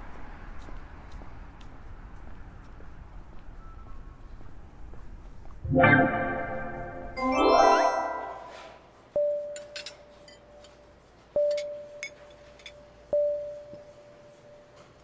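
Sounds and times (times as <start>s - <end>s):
bell-like chime: 5.8s - 8.7s.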